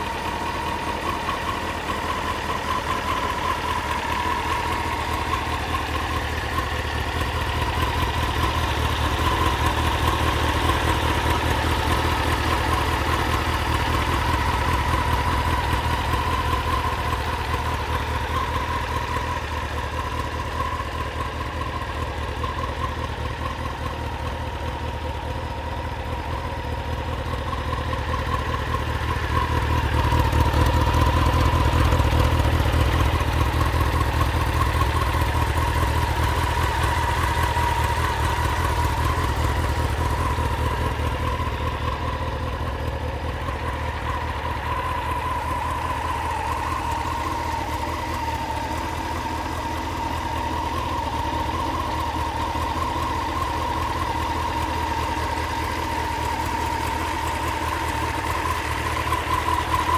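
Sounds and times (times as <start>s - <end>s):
motorcycle engine idling: 0.0s - 59.9s.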